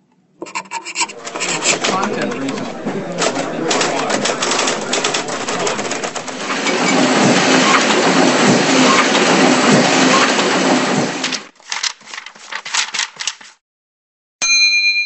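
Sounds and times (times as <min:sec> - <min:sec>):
crackling rushing sound effects: 0:01.1 - 0:13.0.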